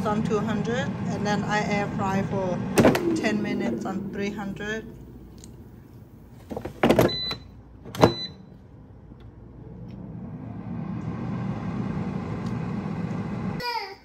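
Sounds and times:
air fryer fan whirring: 0:00.0 - 0:13.8
air fryer clunks: 0:02.7 - 0:03.3, 0:06.6 - 0:08.3.

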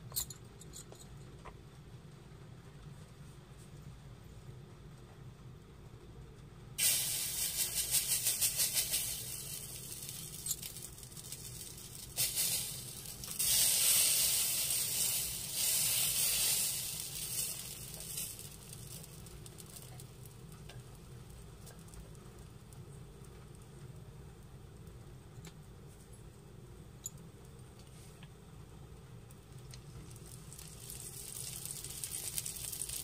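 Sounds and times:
batter sizzling on griddle: 0:06.8 - 0:24.9, 0:29.2 - 0:33.0.

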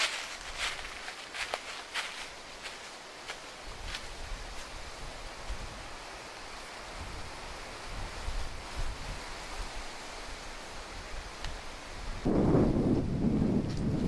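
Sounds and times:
wind hiss: 0:00.0 - 0:14.0
wind rumbling on microphone: 0:03.6 - 0:14.0.

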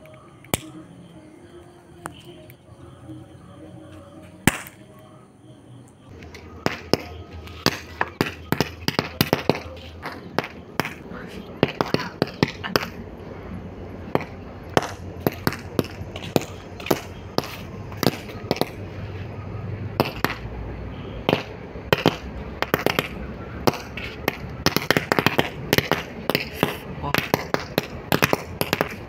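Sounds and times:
toy caps popping: 0:00.0 - 0:01.0, 0:01.9 - 0:02.6, 0:04.0 - 0:05.0, 0:06.1 - 0:13.0, 0:14.0 - 0:18.9, 0:20.0 - 0:20.5, 0:21.2 - 0:29.0.

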